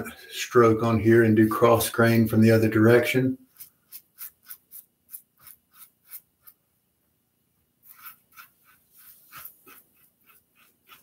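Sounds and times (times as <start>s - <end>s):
razor scraping stubble: 3.4s - 6.6s, 7.8s - 11.0s.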